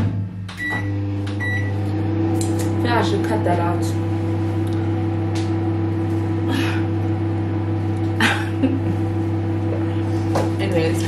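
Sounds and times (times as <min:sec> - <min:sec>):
microwave oven humming: 0:00.0 - 0:11.0.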